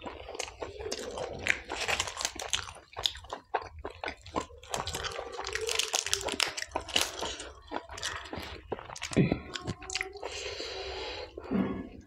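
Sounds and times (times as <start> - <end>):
person chewing: 0.0 - 11.5
crisp bread tearing: 1.5 - 2.7, 4.6 - 7.4.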